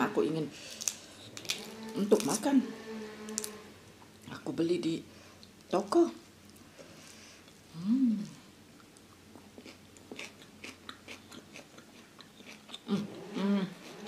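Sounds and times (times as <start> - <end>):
person crunching raw vegetables: 0.6 - 2.5, 3.2 - 3.6, 8.2 - 13.1
person humming briefly: 7.7 - 8.4.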